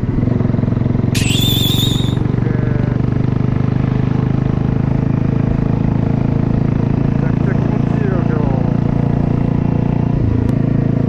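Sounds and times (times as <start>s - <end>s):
motorcycle engine running: 0.0s - 11.0s
high warbling whistle: 1.2s - 2.3s.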